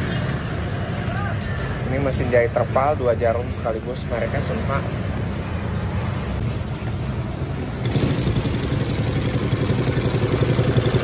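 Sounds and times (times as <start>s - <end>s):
sewing machine motor hum: 7.8s - 11.0s.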